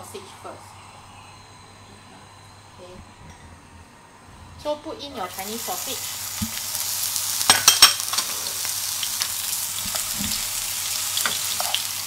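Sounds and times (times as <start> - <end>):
sausage sizzling in oil: 5.2 - 12.0.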